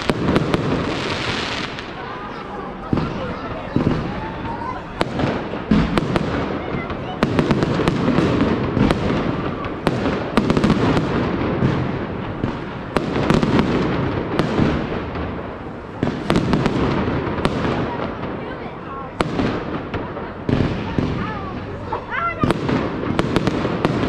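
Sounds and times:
fireworks bangs: 0.0s - 24.0s
fireworks crackling: 0.0s - 24.0s.

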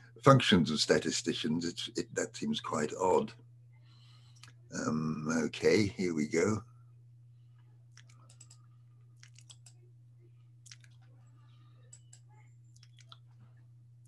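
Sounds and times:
steady low hum: 0.0s - 14.0s
computer mouse clicks: 8.0s - 9.8s, 11.8s - 13.2s.

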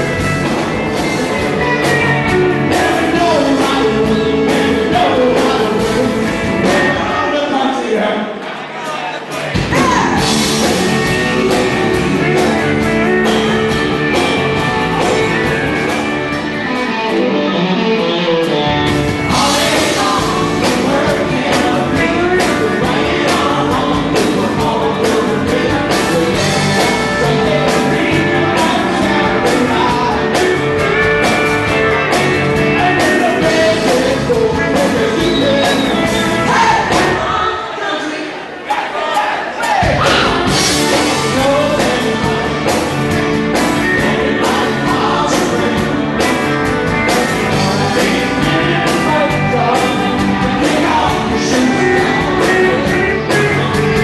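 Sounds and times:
live band playing: 0.0s - 37.8s, 39.6s - 54.0s
man singing into microphone: 2.6s - 8.4s, 19.3s - 30.7s, 32.6s - 38.4s, 39.0s - 42.9s, 43.8s - 46.4s, 47.5s - 54.0s.

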